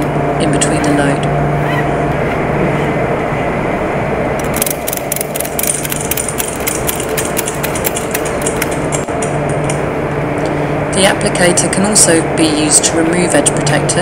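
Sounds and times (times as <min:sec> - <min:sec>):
low engine-like hum: 0:00.0 - 0:14.0
ratchet strap buckle clicking: 0:04.4 - 0:09.1.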